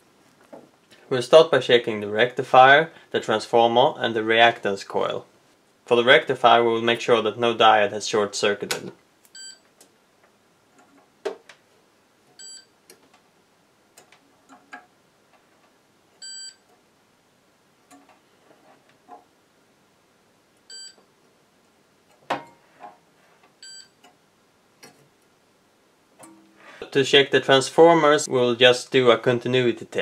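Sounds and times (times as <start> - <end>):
multimeter short beeps: 9.4 - 9.6, 16.2 - 16.6.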